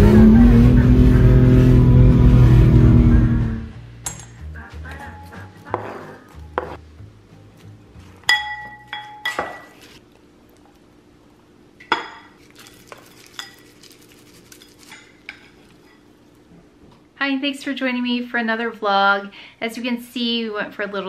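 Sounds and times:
dishes and utensils clinking: 8.2 - 10.0, 11.8 - 16.1.

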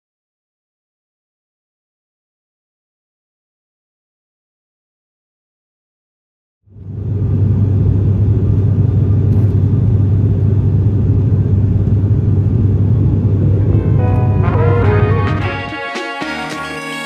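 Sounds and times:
turboprop engines droning: 6.7 - 15.6.

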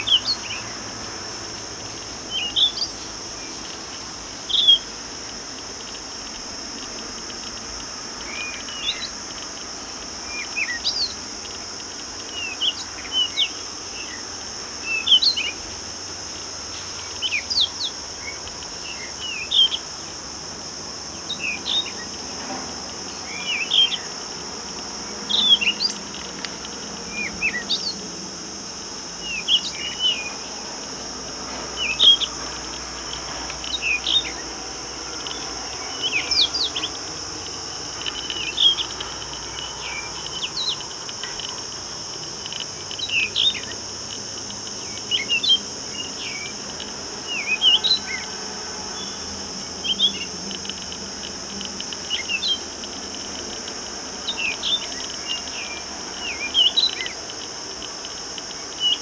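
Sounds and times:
insects droning: 0.0 - 59.0
birds chirping: 23.0 - 28.0, 29.2 - 50.9, 51.8 - 53.3.

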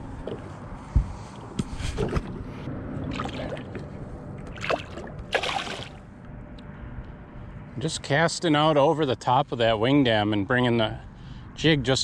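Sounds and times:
water splashing and sloshing: 1.3 - 6.1.

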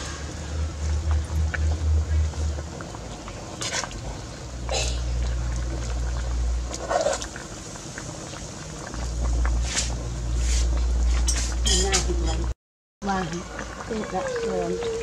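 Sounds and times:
scrapes and splashes: 0.0 - 12.5
steady low rumble: 0.0 - 12.5.

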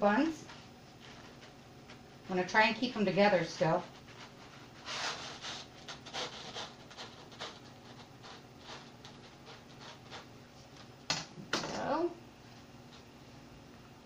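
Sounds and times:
knife sawing through bread rolls: 3.3 - 10.4.

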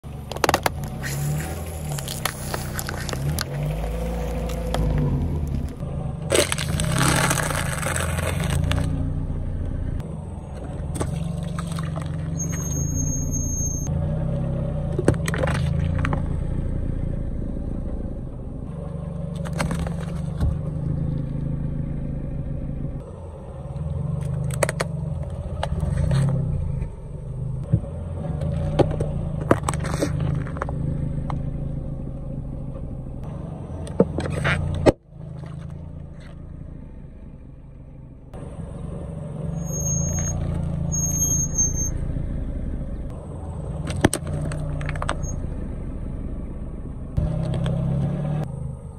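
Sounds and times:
car engine running: 0.0 - 48.9
tyre crushing objects: 6.3 - 9.0.

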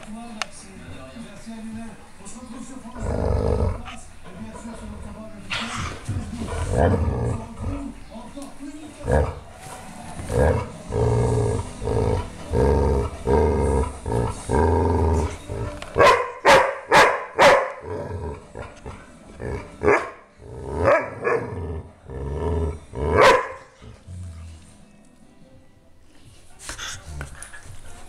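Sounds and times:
dog growling: 2.9 - 8.0, 9.0 - 9.6, 10.2 - 16.1, 17.7 - 24.6
dog barking: 16.0 - 17.8, 19.8 - 20.2, 20.8 - 21.5, 23.2 - 23.7.

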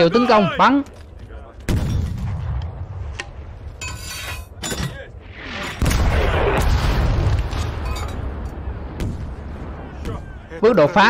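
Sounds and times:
artillery shell explosion boom: 5.8 - 9.4.

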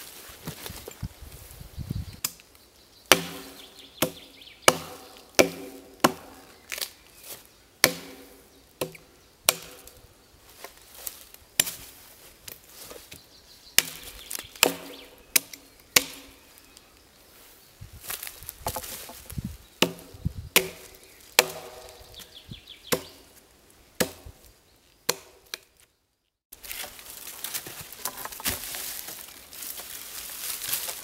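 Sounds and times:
axe chopping into log: 3.1 - 6.9, 7.8 - 9.9, 11.6 - 11.8, 13.8 - 16.4, 19.8 - 22.0, 22.9 - 23.2, 24.0 - 24.3, 25.1 - 25.6.

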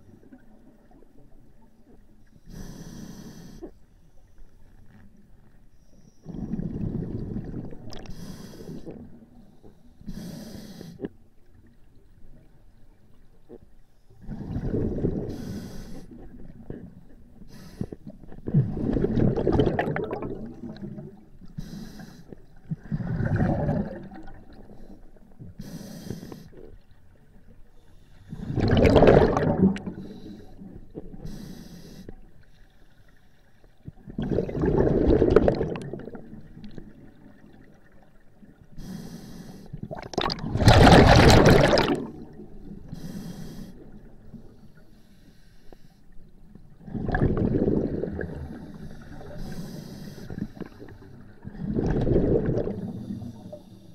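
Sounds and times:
regulator inhale hiss: 2.4 - 4.2, 8.0 - 11.1, 15.3 - 16.3, 17.4 - 18.1, 21.5 - 22.4, 24.7 - 26.6, 30.0 - 33.4, 38.7 - 39.8, 42.9 - 44.0, 44.7 - 46.2, 48.5 - 51.0, 52.8 - 53.9
gurgling exhaled bubbles: 6.3 - 8.1, 14.2 - 15.4, 18.4 - 21.2, 22.7 - 24.8, 28.3 - 30.4, 34.0 - 38.0, 39.8 - 42.6, 46.8 - 49.5, 50.4 - 53.6.

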